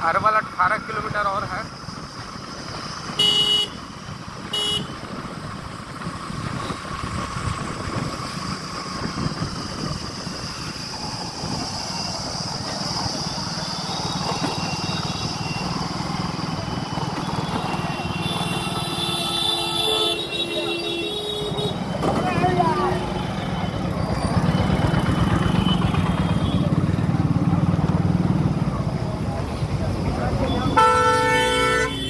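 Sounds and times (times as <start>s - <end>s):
motorcycle engine: 1.8s - 32.0s
horn toots: 3.2s - 3.8s, 4.5s - 5.0s, 30.4s - 32.0s
wind noise: 4.2s - 16.0s.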